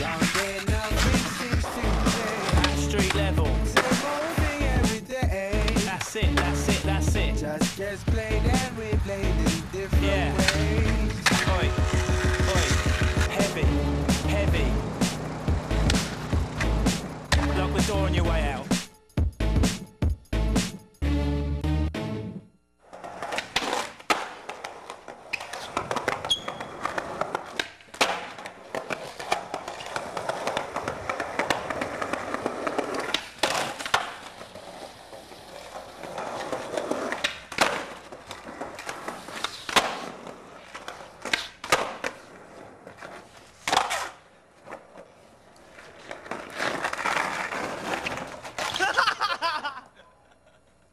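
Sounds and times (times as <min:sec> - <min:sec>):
skateboard clacking on ground: 0:00.0 - 0:05.0, 0:07.6 - 0:13.6, 0:23.0 - 0:49.0
skateboard wheels rolling on concrete: 0:00.0 - 0:18.9, 0:22.8 - 0:50.4.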